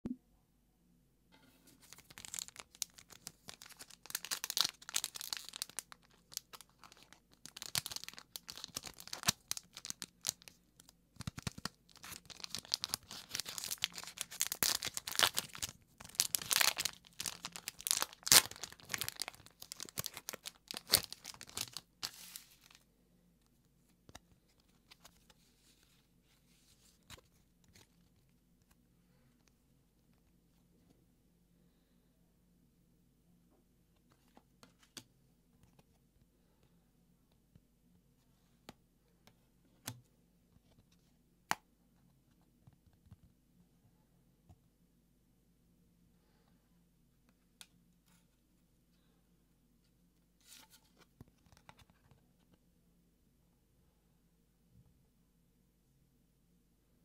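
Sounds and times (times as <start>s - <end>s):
foil pack crinkling and tearing: 1.8s - 10.6s, 11.2s - 22.8s
faint clicks of cards handled: 34.0s - 36.0s, 50.4s - 52.6s.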